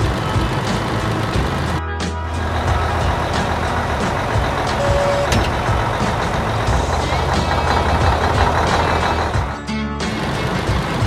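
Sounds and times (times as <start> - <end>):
vehicle engine sound effect: 0.0 - 11.0
short beep: 4.8 - 5.5.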